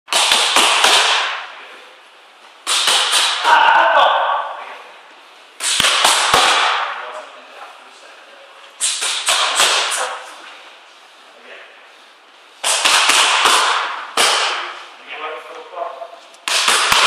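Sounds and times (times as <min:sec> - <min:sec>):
boxing gloves slapping mitts: 0:00.1 - 0:01.5, 0:02.6 - 0:03.6, 0:05.6 - 0:06.9, 0:08.8 - 0:10.0, 0:12.6 - 0:14.8, 0:16.4 - 0:17.0.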